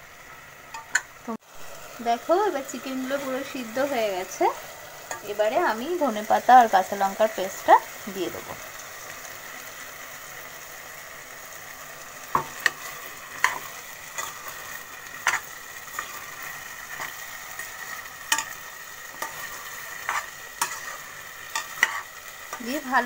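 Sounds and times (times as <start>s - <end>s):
chicken sizzling in a pan: 0.0s - 23.0s
utensil scraping against pan: 12.4s - 17.3s, 18.2s - 22.7s.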